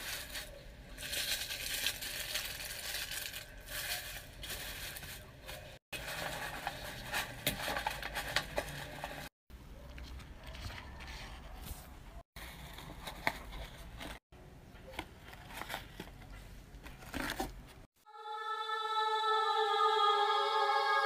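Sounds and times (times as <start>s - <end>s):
paper and tissue rustling: 0.0s - 9.3s, 10.1s - 14.2s, 14.9s - 17.9s.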